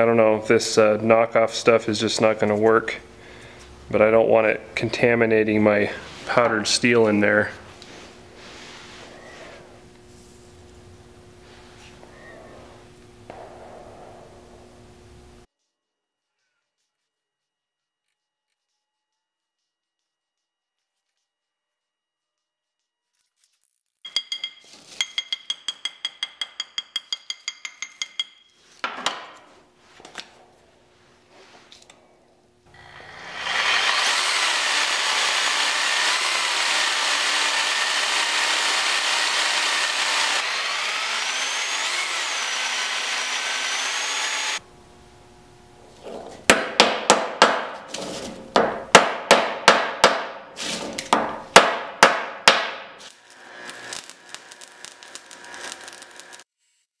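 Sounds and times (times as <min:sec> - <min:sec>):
hard hammer blows: 0:46.4 - 0:53.0.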